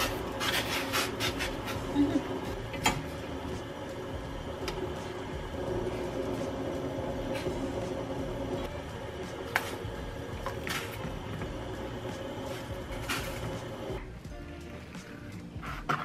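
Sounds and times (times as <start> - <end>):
kitchen fan humming: 0.0 - 14.0.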